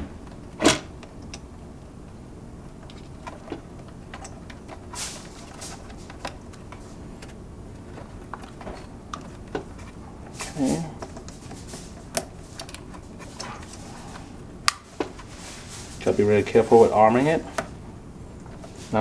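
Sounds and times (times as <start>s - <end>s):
small clicks and scrapes: 2.7s - 14.3s.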